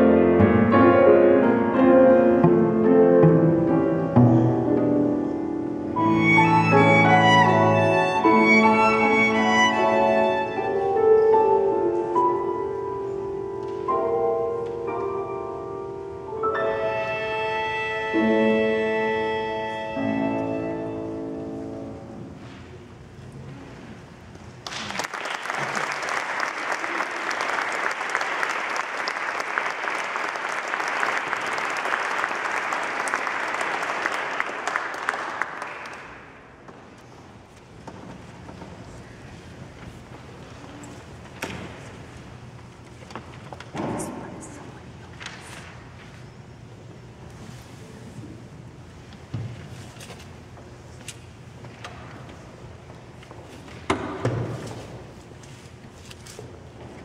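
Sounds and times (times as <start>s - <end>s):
violin long notes: 0.0s - 12.0s, 16.4s - 22.1s
piano chords: 0.0s - 23.1s
cello: 5.9s - 11.6s, 16.7s - 21.6s
audience applauding: 24.6s - 36.6s.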